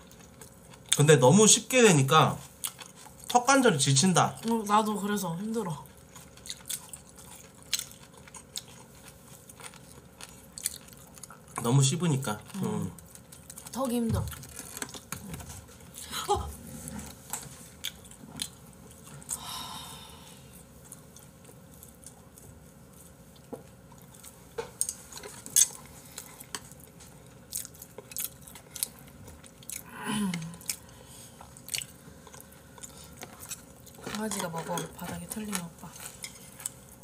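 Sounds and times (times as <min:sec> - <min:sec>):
close chewing: 0:05.6 - 0:16.0, 0:20.7 - 0:37.0.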